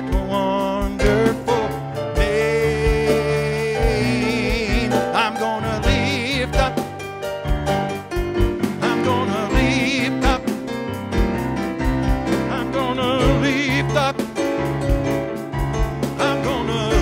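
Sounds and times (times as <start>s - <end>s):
person singing with vibrato: 0.0s - 7.0s, 8.8s - 10.6s, 12.4s - 14.4s, 16.2s - 17.0s
electronic keyboard: 0.0s - 17.0s
steady drum beat: 0.0s - 17.0s.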